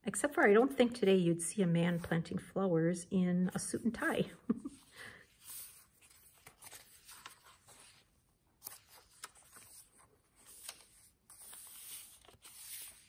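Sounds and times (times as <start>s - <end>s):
paper pages rustling: 5.4s - 13.0s.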